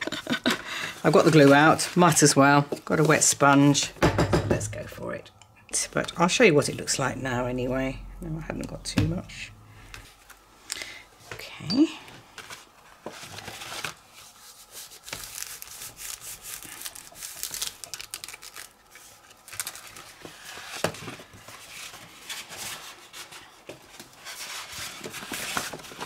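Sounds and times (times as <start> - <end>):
heavy paper rustling: 0.4 - 3.4, 12.2 - 26.0.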